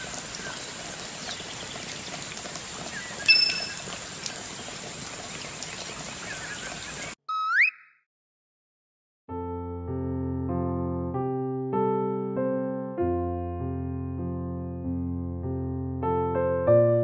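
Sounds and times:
rain-like hiss: 0.0s - 7.2s
bright ding: 3.3s - 3.8s
rising whistle sound effect: 7.3s - 8.0s.

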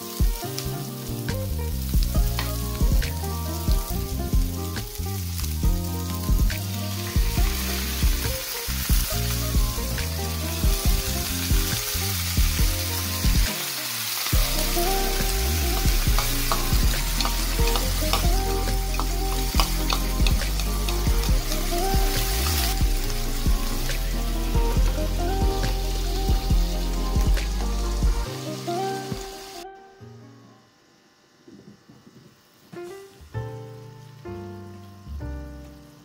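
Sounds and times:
food sizzling in a frying pan: 0.0s - 29.6s, 32.4s - 36.0s
background music with steady pulse: 0.0s - 31.2s.

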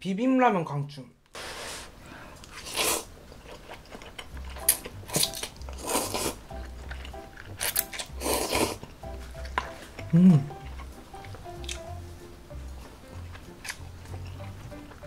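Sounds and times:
person slurping noodles: 1.4s - 3.1s, 5.1s - 6.4s, 7.6s - 8.8s
chewing: 2.3s - 15.0s.

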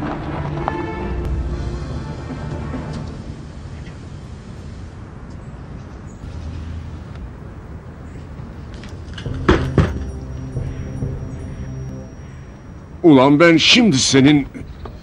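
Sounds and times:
car engine idling: 6.3s - 12.9s
loud bangs: 9.0s - 13.0s.

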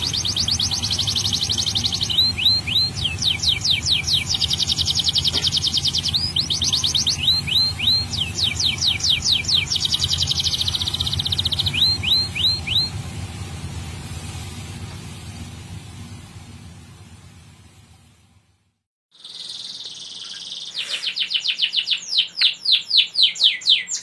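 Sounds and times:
canary singing trills: 0.0s - 12.9s, 19.1s - 24.0s.

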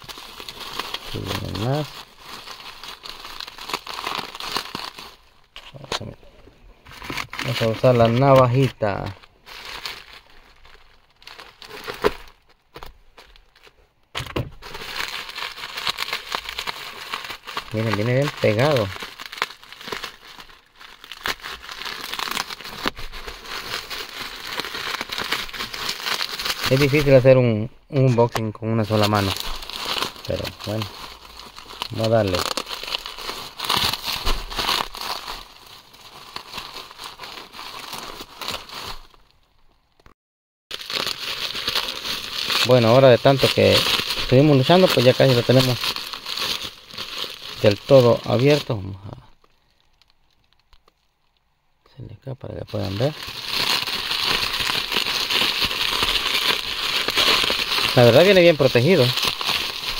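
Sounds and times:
bubble wrap crinkling: 0.0s - 6.2s, 6.8s - 40.1s, 40.7s - 51.5s, 52.5s - 59.9s.

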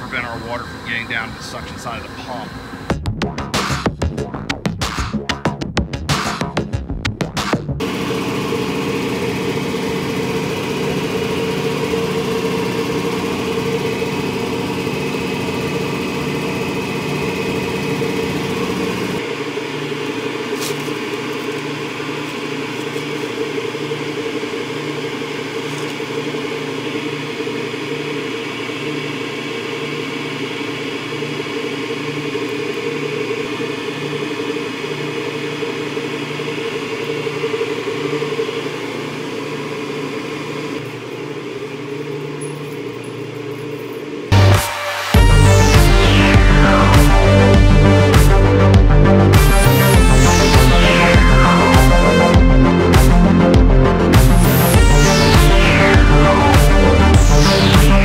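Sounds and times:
machinery hum with steady tones: 0.0s - 3.0s, 7.8s - 58.0s.

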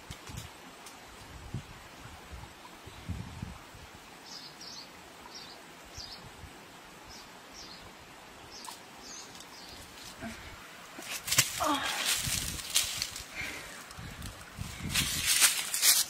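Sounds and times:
leaves rustling: 8.3s - 16.0s
bird chirping: 8.5s - 10.0s.

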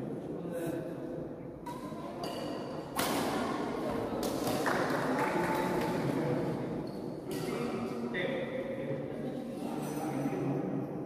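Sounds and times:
voices echoing in a hall: 0.0s - 11.0s
racket hitting shuttlecock: 1.6s - 4.9s.

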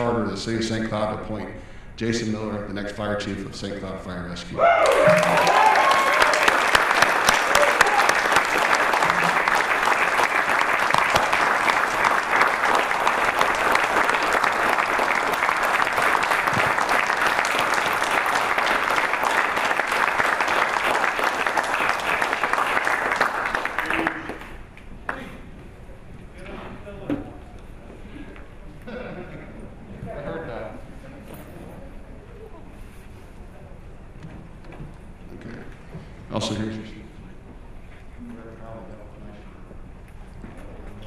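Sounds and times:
audience applauding: 4.8s - 25.3s.

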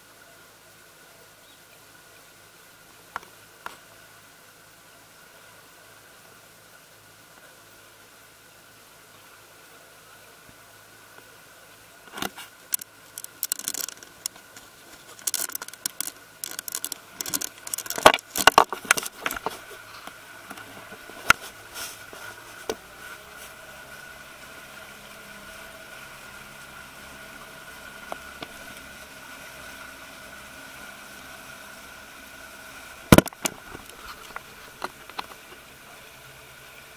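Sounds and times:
boat engine running: 12.2s - 36.9s.

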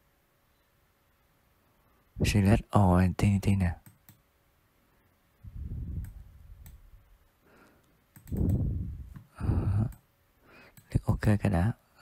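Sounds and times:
computer mouse clicks: 3.8s - 4.2s, 6.0s - 6.8s, 7.8s - 10.1s, 10.7s - 11.0s
man muttering: 9.3s - 10.0s.

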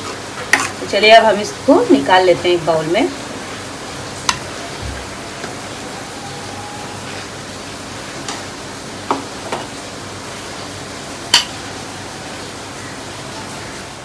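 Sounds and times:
spoon clinking against pan and bowl: 11.3s - 11.6s.

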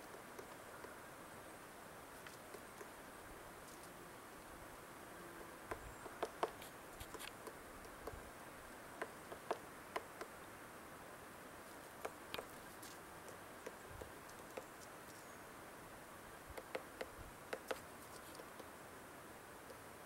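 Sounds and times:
woodpecker pecking wood: 0.0s - 1.0s, 2.2s - 3.0s, 5.7s - 8.2s, 9.0s - 10.4s, 11.7s - 14.9s, 16.5s - 18.7s.

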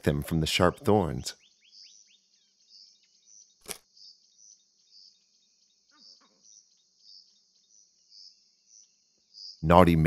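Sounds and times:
thin bird chirps: 0.5s - 9.8s
sharp click: 3.6s - 3.8s.

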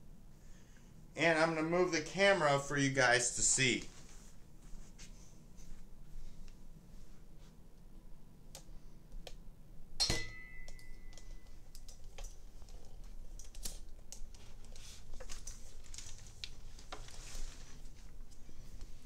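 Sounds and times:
sharp metallic clink: 10.0s - 11.2s.

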